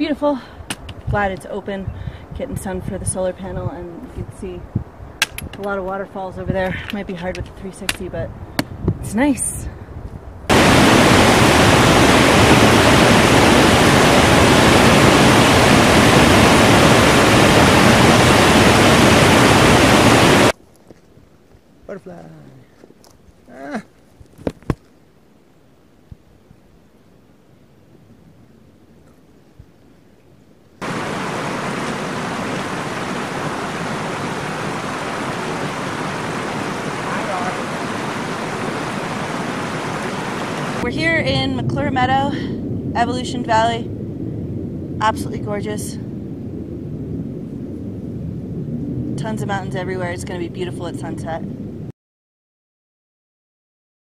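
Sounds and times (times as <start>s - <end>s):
waterfall rushing: 10.5s - 20.5s, 30.8s - 41.2s.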